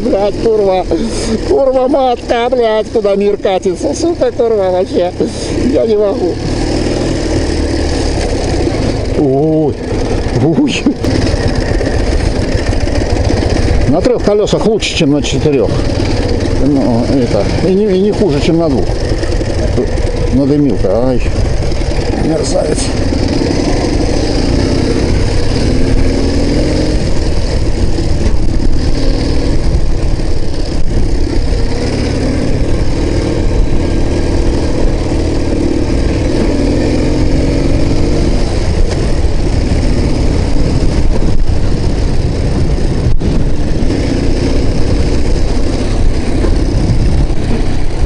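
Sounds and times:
motorcycle engine running: 0.0 - 48.0
wind buffeting microphone: 9.8 - 48.0.

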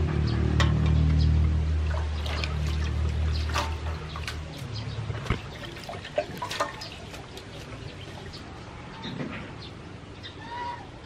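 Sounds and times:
water splashing in a metal basin: 0.0 - 8.7.

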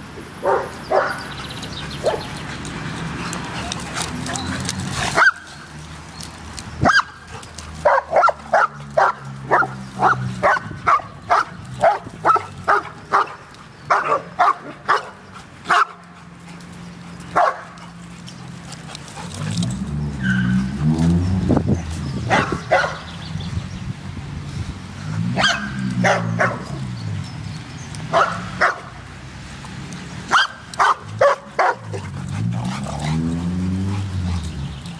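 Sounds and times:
dog barking: 0.4 - 1.2, 7.8 - 16.0, 17.4 - 17.6, 22.3 - 23.0, 25.4 - 26.6, 28.1 - 28.9, 30.3 - 32.0.

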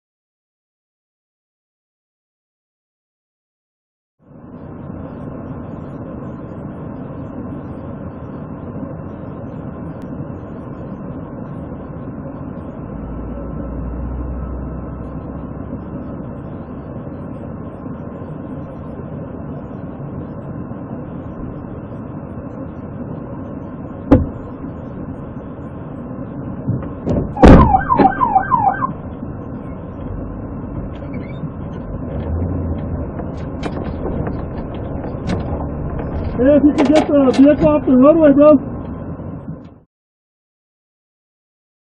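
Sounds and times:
car engine and cabin hum: 4.2 - 39.8
siren chirps: 27.4 - 29.0.

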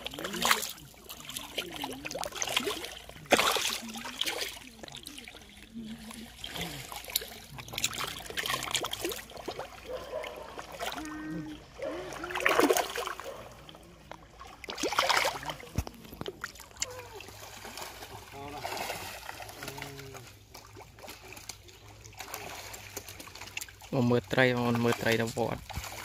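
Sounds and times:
fish splashing in water: 0.0 - 26.0.

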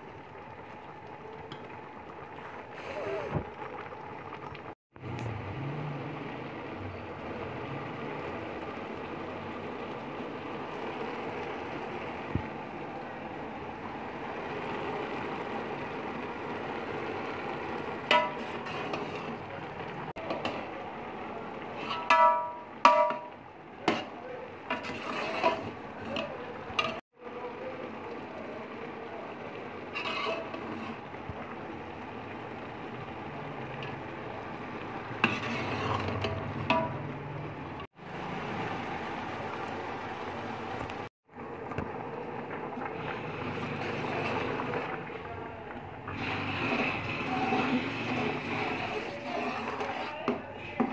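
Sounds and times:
pot simmering and bubbling: 0.0 - 50.9
metal spoon clanking on pot: 18.1 - 19.2, 21.8 - 24.1, 24.7 - 27.0, 35.2 - 37.1.

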